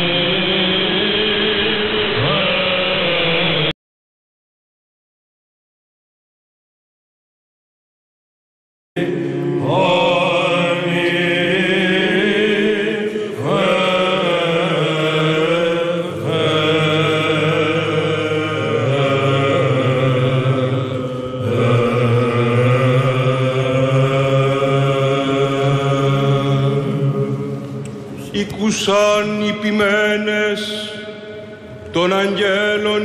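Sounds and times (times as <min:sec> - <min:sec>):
held low drone note: 0:00.0 - 0:03.7, 0:09.0 - 0:28.4
voices singing slow chant: 0:00.0 - 0:03.7, 0:09.0 - 0:33.0.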